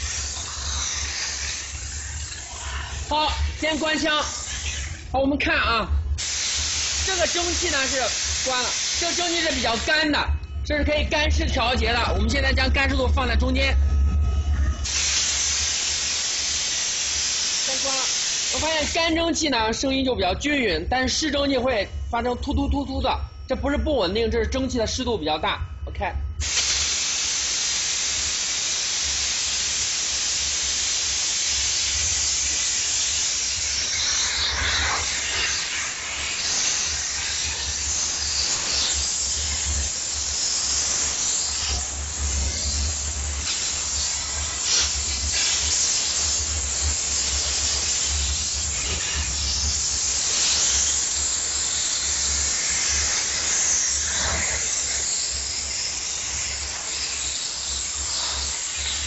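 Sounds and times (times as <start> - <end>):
steam cleaner hissing: 0.0 - 5.2, 6.1 - 10.2, 14.8 - 19.2, 26.4 - 59.0.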